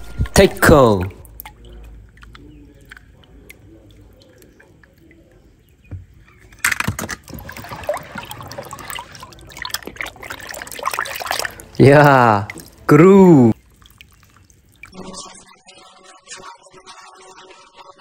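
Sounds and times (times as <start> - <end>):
water running and splashing: 1.2 - 12.9, 13.5 - 15.2.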